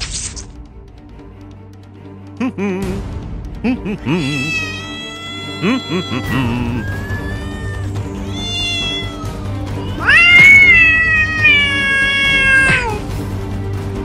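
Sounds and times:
background music: 0.0 - 14.0
long high wail: 4.1 - 13.0.

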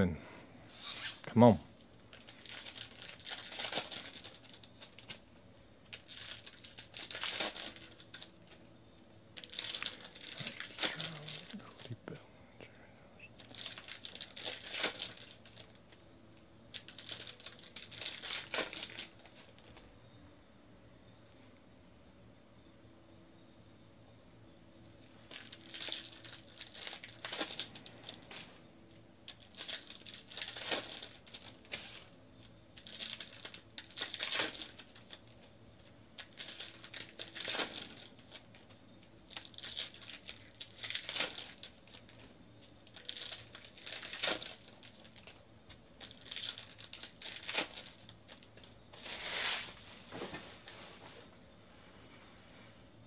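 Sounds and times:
card pack wrappers tearing: 2.1 - 5.2, 5.8 - 8.6, 9.4 - 12.0, 13.4 - 16.0, 16.7 - 19.7, 25.2 - 28.6, 29.3 - 32.1, 32.7 - 38.7, 39.3 - 49.8.

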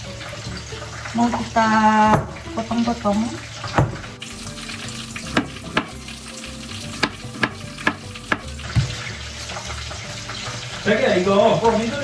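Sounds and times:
chicken sizzling in oil: 0.0 - 12.0
knife strikes on cutting board: 2.1 - 2.4, 3.7 - 4.0, 5.3 - 6.0, 7.0 - 9.0.

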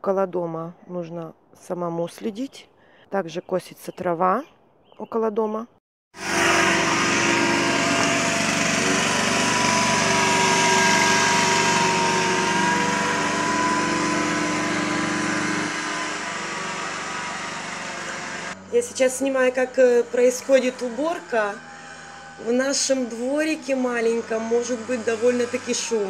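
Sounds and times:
litter vacuum engine whining: 6.2 - 26.0.

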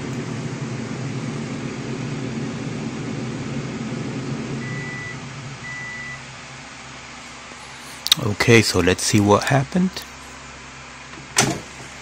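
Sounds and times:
air fryer fan hum: 0.0 - 12.0.

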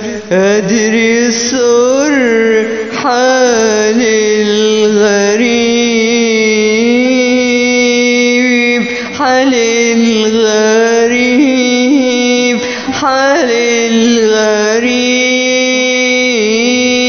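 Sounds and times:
person singing long ornamented notes: 0.0 - 17.0.

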